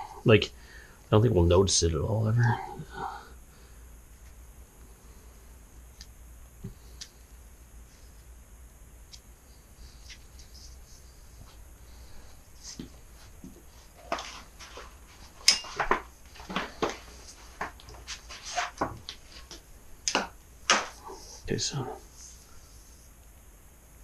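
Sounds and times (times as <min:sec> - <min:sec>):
scratchy scrapes: 0:16.7 - 0:19.5.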